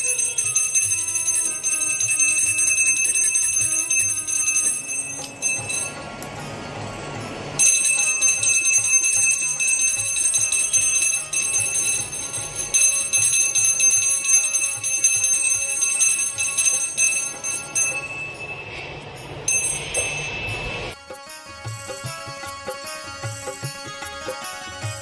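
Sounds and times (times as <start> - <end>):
hand bell ringing rapidly: 0.0 - 6.0, 7.6 - 18.7, 19.5 - 20.7.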